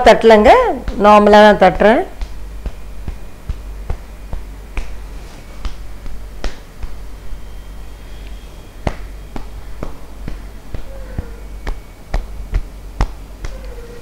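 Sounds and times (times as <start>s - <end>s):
cupped hand patting head: 2.2s - 7.1s, 8.8s - 14.0s.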